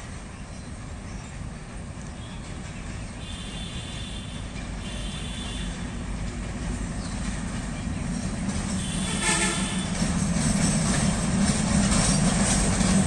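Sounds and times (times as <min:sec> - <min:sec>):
diesel locomotive engine rumbling: 0:00.0 - 0:13.0.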